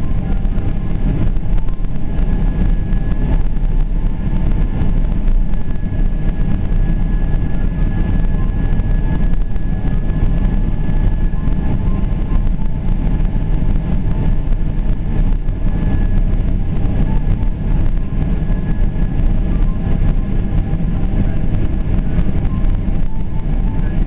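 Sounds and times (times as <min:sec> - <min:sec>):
airliner engines low rumble: 0:00.0 - 0:24.0
faint high whine: 0:00.0 - 0:24.0.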